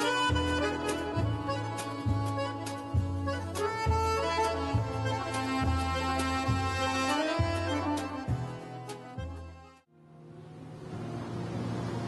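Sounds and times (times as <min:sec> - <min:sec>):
steady rushing noise: 0:10.3 - 0:12.0.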